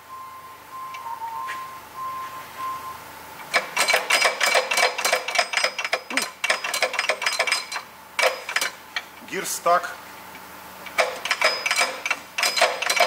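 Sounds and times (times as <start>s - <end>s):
lathe gears clicking and clattering: 3.4s - 9.1s, 10.9s - 13.0s.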